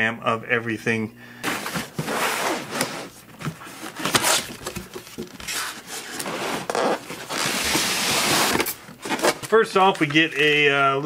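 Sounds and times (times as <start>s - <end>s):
cardboard and foam scraping: 1.5s - 4.6s, 5.4s - 9.6s.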